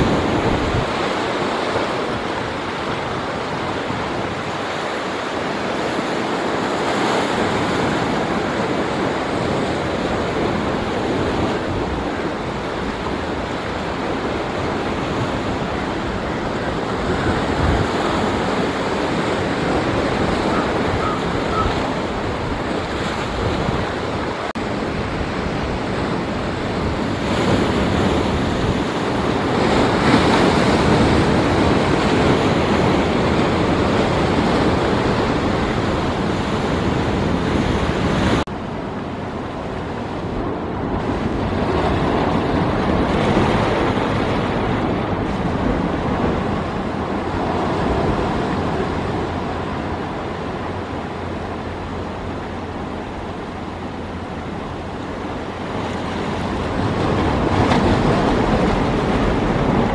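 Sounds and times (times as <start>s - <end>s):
surf breaking on rocks: 40.4s - 59.9s.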